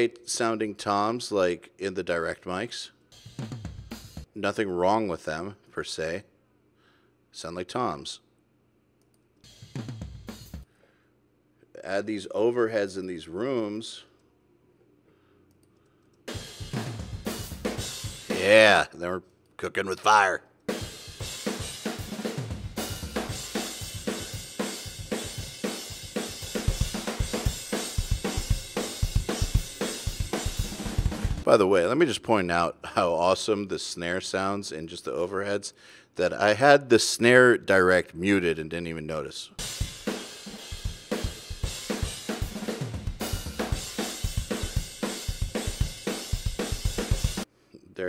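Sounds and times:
drum kit playing a beat: 0:03.1 - 0:04.3, 0:09.4 - 0:10.7, 0:16.3 - 0:18.9, 0:20.1 - 0:31.5, 0:39.6 - 0:47.5.

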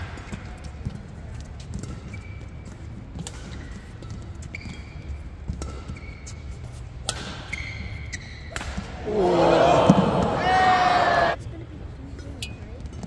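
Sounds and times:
court shoes squeaking: 0:00.1 - 0:11.4
racket striking shuttlecock: 0:03.2 - 0:03.6, 0:07.0 - 0:07.6, 0:08.5 - 0:08.9.

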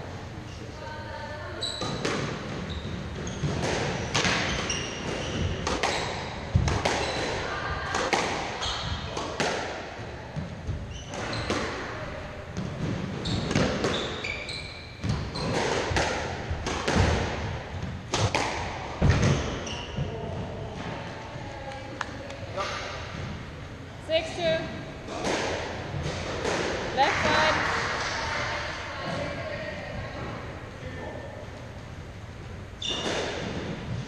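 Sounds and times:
shoes squeaking on wooden floor: 0:01.6 - 0:06.3, 0:08.6 - 0:09.0, 0:10.7 - 0:11.6, 0:13.1 - 0:15.8, 0:32.8 - 0:33.4
squash ball hitting rackets and walls: 0:01.6 - 0:23.5, 0:24.9 - 0:29.6, 0:32.8 - 0:34.0.

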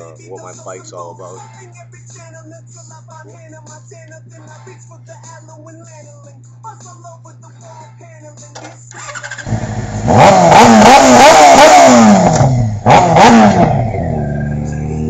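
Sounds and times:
motorcycle engine revving: 0:08.9 - 0:15.0.

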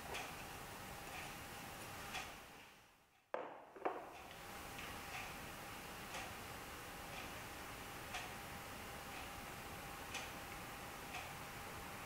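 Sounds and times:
sharp knocks: 0:03.4 - 0:04.2.

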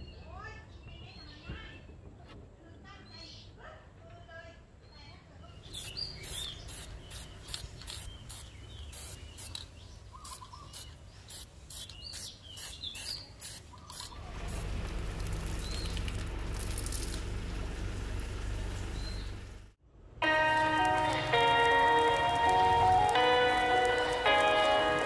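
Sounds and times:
birds chirping: 0:04.8 - 0:19.7
aerosol spray bursts: 0:05.6 - 0:14.8
steady low rumble: 0:14.1 - 0:19.8.

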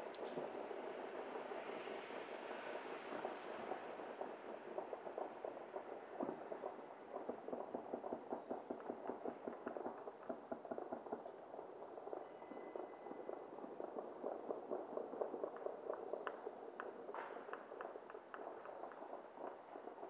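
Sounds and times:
distant fireworks and gunfire: 0:00.1 - 0:20.0
faint high whistle: 0:12.1 - 0:13.4.

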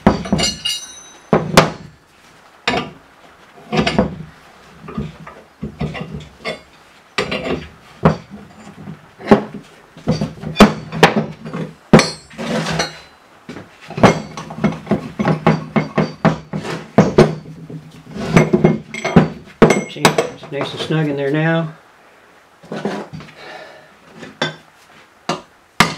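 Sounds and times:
sharp ringing metal clank: 0:00.0 - 0:01.3, 0:12.0 - 0:13.2
tools clanking on workbench: 0:00.0 - 0:01.9, 0:02.7 - 0:03.0, 0:03.6 - 0:04.3, 0:04.9 - 0:13.2, 0:13.9 - 0:21.0.

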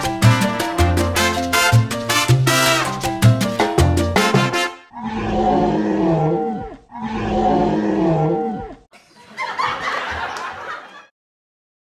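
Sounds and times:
lion grunting call: 0:04.9 - 0:08.9
lion roaring: 0:04.9 - 0:08.9.

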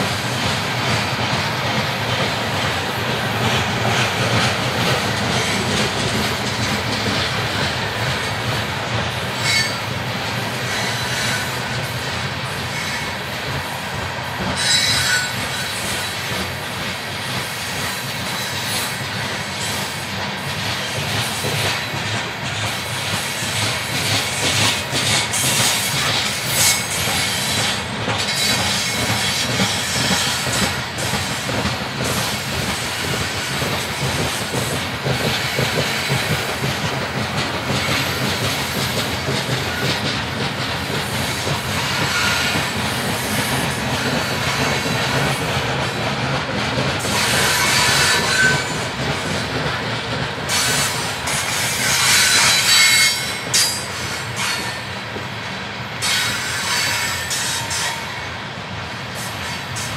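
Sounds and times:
coal cars rumbling on rails: 0:00.0 - 0:59.9
wheels clicking over rail joints: 0:00.1 - 0:10.6
wheel squeals: 0:14.6 - 0:16.0.

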